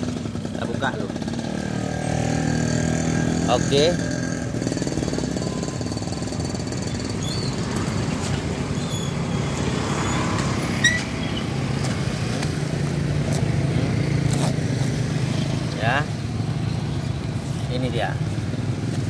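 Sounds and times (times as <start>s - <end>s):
vehicle engine rumbling: 0.0s - 19.0s
knife cutting packing tape: 11.9s - 15.0s.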